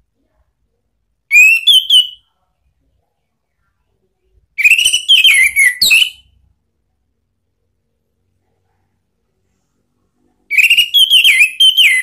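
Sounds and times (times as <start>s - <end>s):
bird singing whistled notes: 1.3s - 2.3s, 4.6s - 6.3s, 10.5s - 12.0s.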